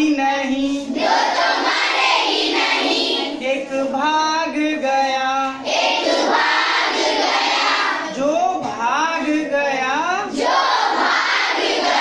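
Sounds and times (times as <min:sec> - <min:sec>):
children singing in unison: 0:00.8 - 0:03.5, 0:05.5 - 0:08.2, 0:10.3 - 0:12.0.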